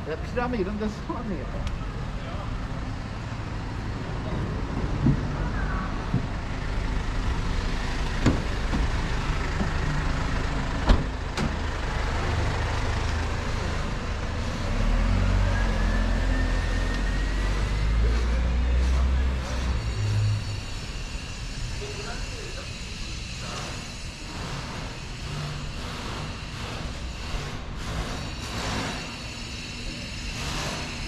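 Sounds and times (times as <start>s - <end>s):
street noise: 0.0s - 31.0s
vehicle engine rumble with whine: 0.0s - 31.0s.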